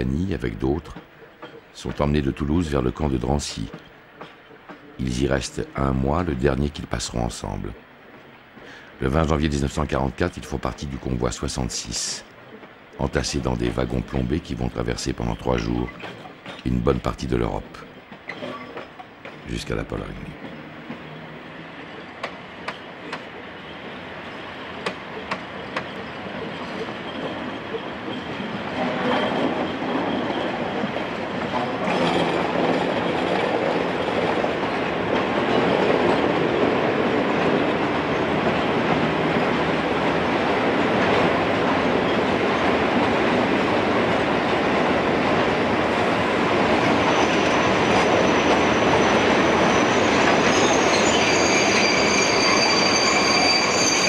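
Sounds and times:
train wheels clattering on rails: 0:00.5 - 0:05.6, 0:11.4 - 0:54.0
high wheel squeal: 0:25.4 - 0:30.8, 0:46.9 - 0:54.0.

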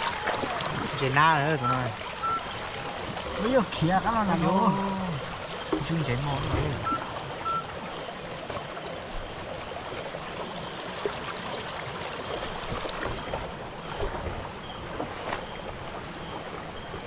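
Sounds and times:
stream water flowing: 0:00.0 - 0:17.0.

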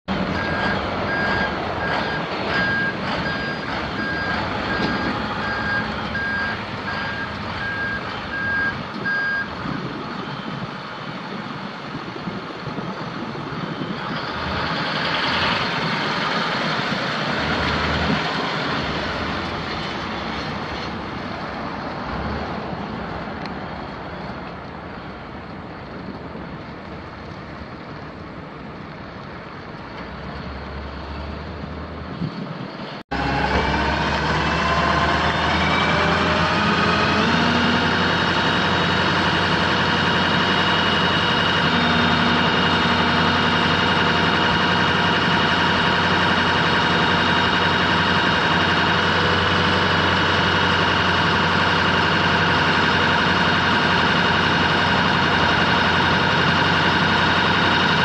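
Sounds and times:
diesel engine running: 0:00.0 - 0:58.0
road noise: 0:00.0 - 0:58.0
truck reversing alarm beeping: 0:00.1 - 0:10.6.

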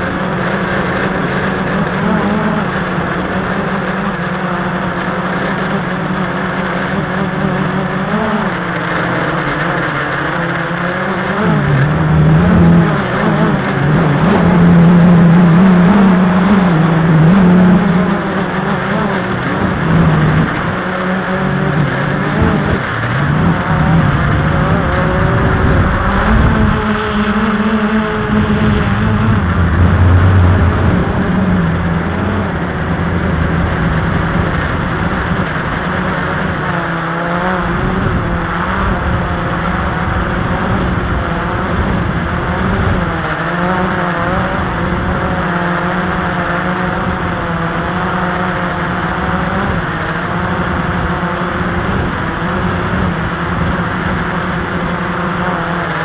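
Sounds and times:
drone motors whirring: 0:00.0 - 0:56.0
dense rushing noise: 0:21.4 - 0:43.2.

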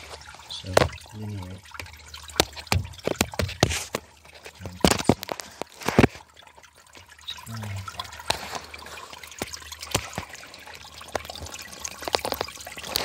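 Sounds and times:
water trickling from pipe: 0:00.0 - 0:13.0
phone handling knocks and scrapes: 0:02.4 - 0:04.0.

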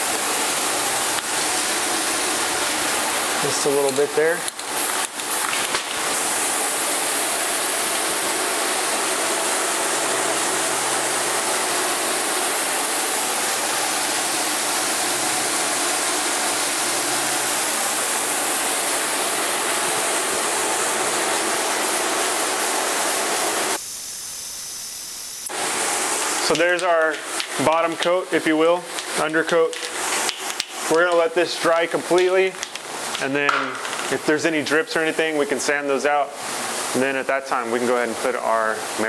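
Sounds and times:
spray can hissing: 0:25.5 - 0:31.4.

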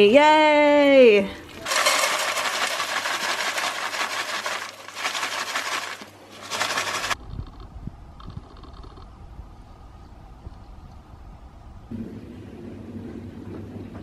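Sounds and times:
oats pouring into pan: 0:01.6 - 0:07.2.

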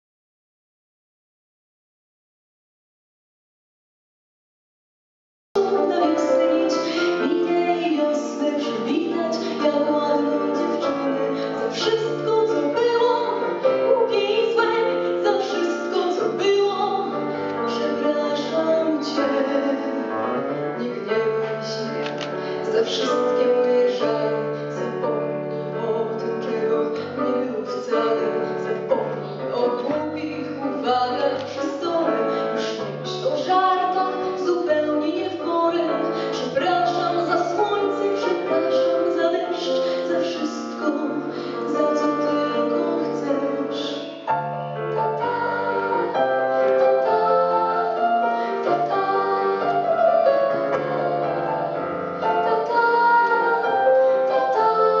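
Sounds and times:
woman singing into a microphone: 0:05.6 - 0:44.2, 0:52.3 - 0:55.0
instrumental accompaniment: 0:05.6 - 0:55.0.

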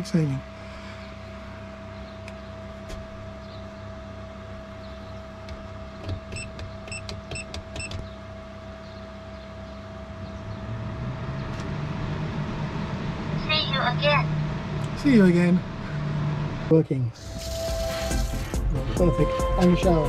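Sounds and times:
roof vent fan motor hum: 0:00.0 - 0:20.0
control panel beeps: 0:06.3 - 0:08.0.

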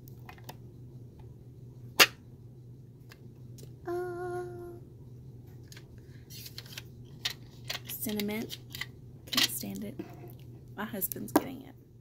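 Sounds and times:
person humming: 0:03.8 - 0:04.8.

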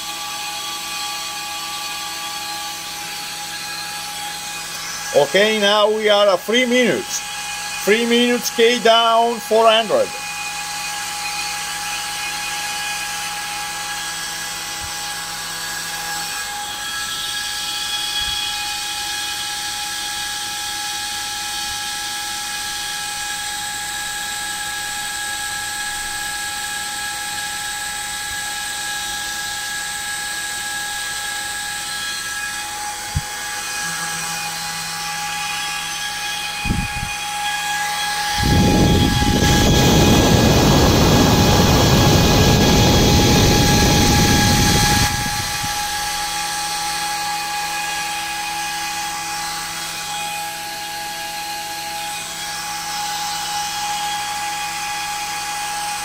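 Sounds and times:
cooling fans whining: 0:00.0 - 0:56.0
loud rush of noise: 0:38.4 - 0:46.2.

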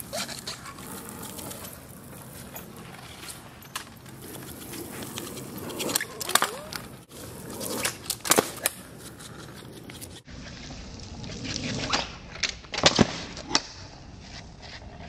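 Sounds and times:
scooter rolling on wet asphalt: 0:00.0 - 0:08.9
scooter deck clacking: 0:00.1 - 0:09.0.

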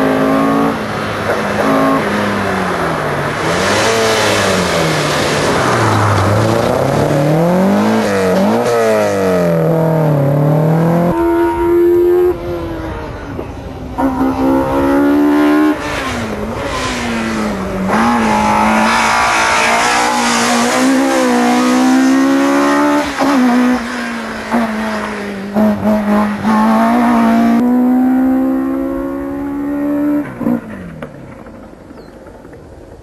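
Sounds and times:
car engine revving: 0:00.0 - 0:31.0
tyre squeal: 0:17.9 - 0:21.6.

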